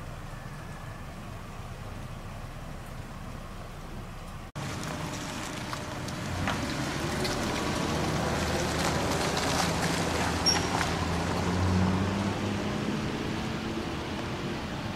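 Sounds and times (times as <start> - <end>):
vehicle engine humming: 0.0 - 14.9.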